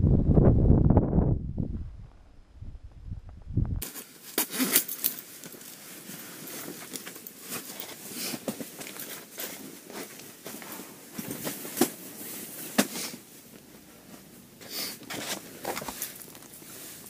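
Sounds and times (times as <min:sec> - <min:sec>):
wind buffeting microphone: 0:00.0 - 0:03.8.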